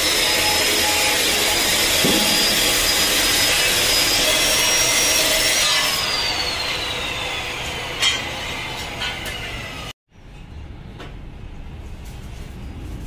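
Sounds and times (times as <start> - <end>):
power tool motor whining: 0.0 - 9.9.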